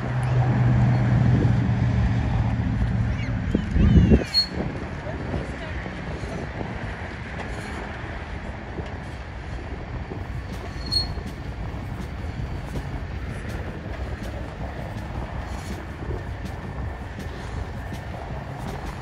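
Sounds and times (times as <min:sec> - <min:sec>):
bicycle tyres rolling on path: 0:00.0 - 0:19.0
wind buffeting microphone: 0:00.0 - 0:19.0
brief high squeak: 0:04.2 - 0:04.6, 0:10.7 - 0:11.4.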